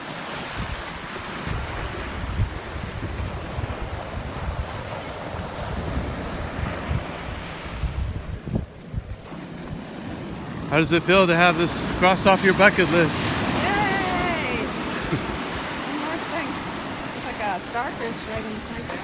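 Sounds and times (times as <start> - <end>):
ocean surf breaking: 0.0 - 19.0
wind buffeting microphone: 0.2 - 19.0.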